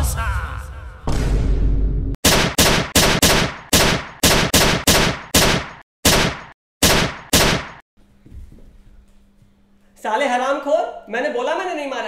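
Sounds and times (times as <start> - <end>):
pistol shots: 2.2 - 7.8.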